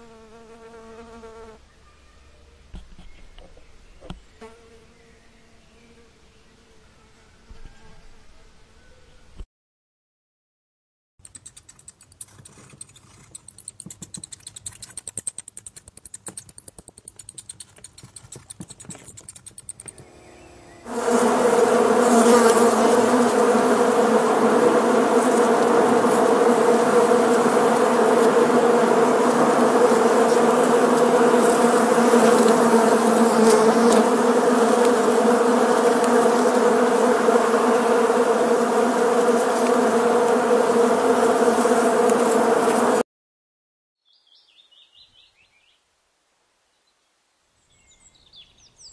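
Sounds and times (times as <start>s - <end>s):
honeybees buzzing: 0.0s - 1.6s, 19.7s - 43.0s
rapid faint clicking: 11.2s - 20.0s.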